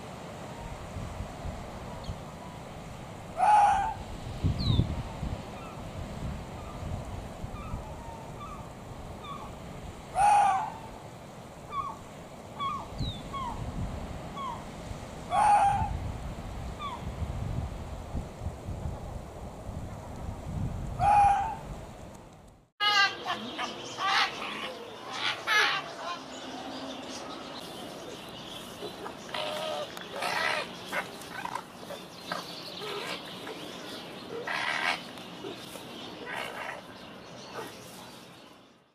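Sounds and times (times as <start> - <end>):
steady background hiss: 0.0 - 38.9
fox screaming calls: 3.4 - 4.0, 10.1 - 10.9, 15.3 - 16.0, 21.0 - 21.6, 29.3 - 31.6, 34.4 - 35.1.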